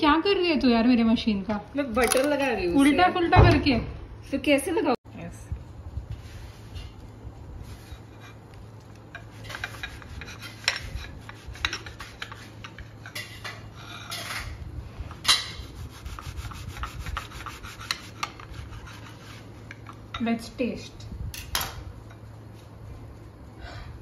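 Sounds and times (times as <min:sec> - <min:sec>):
knife sawing and scraping plate: 0:09.2 - 0:14.6, 0:15.3 - 0:19.8.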